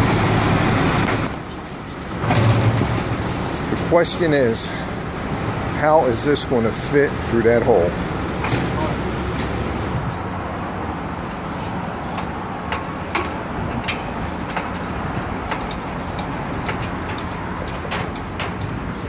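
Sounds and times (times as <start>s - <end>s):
street traffic rumble: 0.0s - 19.0s
lifting chains clinking: 1.5s - 5.8s, 12.8s - 19.0s.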